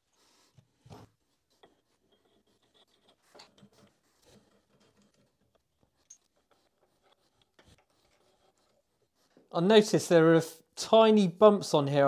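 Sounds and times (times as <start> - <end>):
light rubbing and scraping on metal: 0.0 - 9.6.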